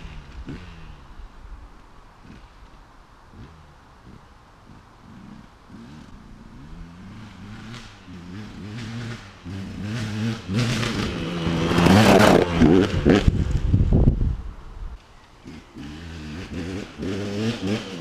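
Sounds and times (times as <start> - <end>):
dirt bike engine revving: 0.0 - 1.2, 3.3 - 14.0, 15.4 - 18.0.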